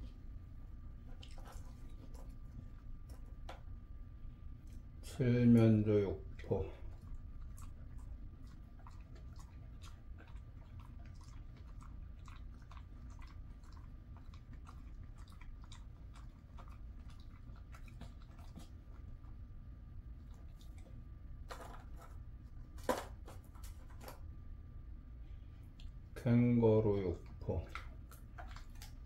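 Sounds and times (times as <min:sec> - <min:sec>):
dog chewing jerky: 0:06.3 - 0:24.3, 0:27.3 - 0:29.0.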